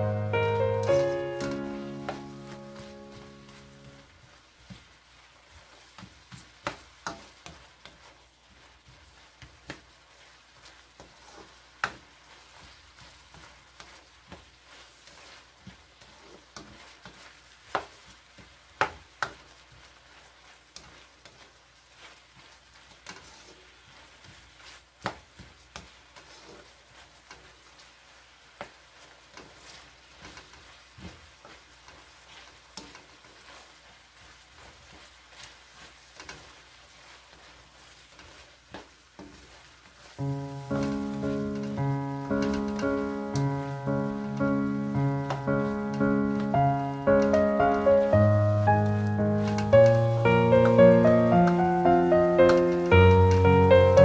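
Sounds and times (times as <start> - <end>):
onions sizzling in a wok: 0.0 - 54.0
spatula scraping a wok: 3.6 - 43.6.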